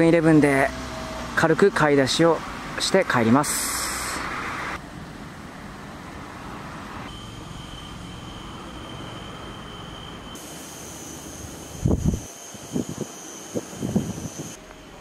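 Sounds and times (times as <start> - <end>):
road traffic noise: 0.0 - 15.0
thin steady high tone: 7.0 - 15.0.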